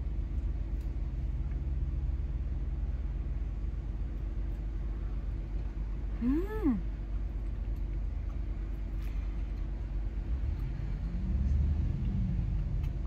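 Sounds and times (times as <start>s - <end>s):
low mechanical hum: 0.0s - 13.0s
even drone: 8.9s - 13.0s.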